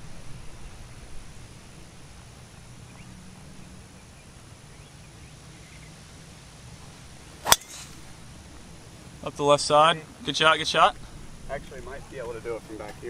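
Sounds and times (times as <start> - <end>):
faint outdoor background: 0.0 - 13.0
golf club striking ball: 7.4 - 8.2.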